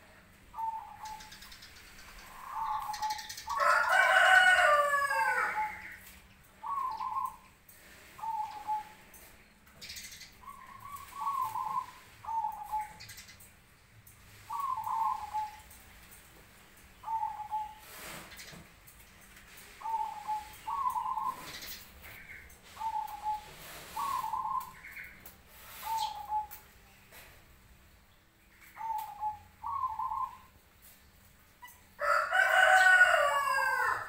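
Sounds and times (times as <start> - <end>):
doves cooing: 0.0 - 7.5, 8.1 - 9.2, 9.9 - 13.4, 14.4 - 15.8, 17.0 - 18.6, 19.6 - 27.2, 28.8 - 30.6.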